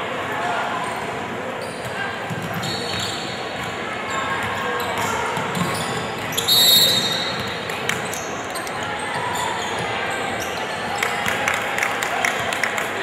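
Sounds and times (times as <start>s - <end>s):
hum of large hall: 0.0s - 13.0s
basketballs bouncing on gym floor: 4.4s - 8.1s
referee's whistle: 6.3s - 7.5s.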